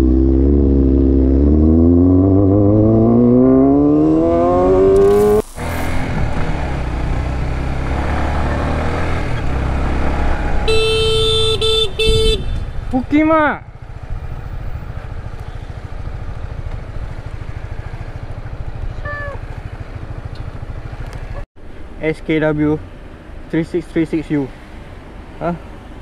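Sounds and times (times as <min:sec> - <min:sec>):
motorcycle engine accelerating: 0:00.0 - 0:21.4
motorcycle running along street: 0:00.0 - 0:26.0
road noise: 0:00.0 - 0:26.0
vehicle horn: 0:10.5 - 0:12.8.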